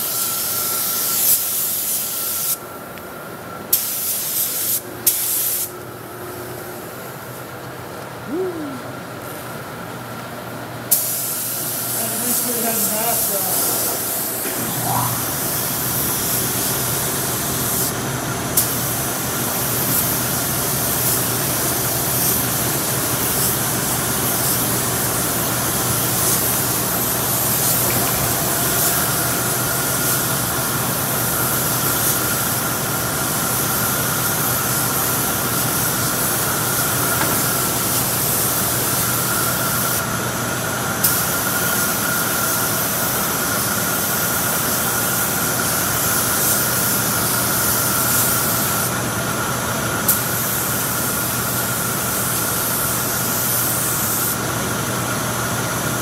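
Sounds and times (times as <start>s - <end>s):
spray gun hissing: 3.7s - 5.7s, 10.9s - 18.0s, 18.6s - 40.0s, 50.1s - 54.4s.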